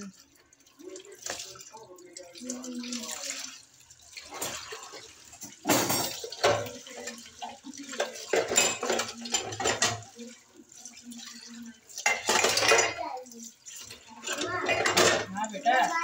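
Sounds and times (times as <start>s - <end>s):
tap water splashing into sink: 0.0s - 16.0s
dishes clattering: 4.2s - 10.5s, 11.2s - 16.0s.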